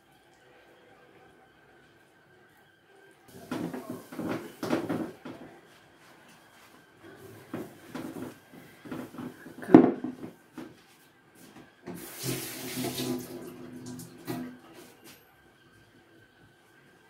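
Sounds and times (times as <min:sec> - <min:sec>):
running water: 0:11.9 - 0:15.0.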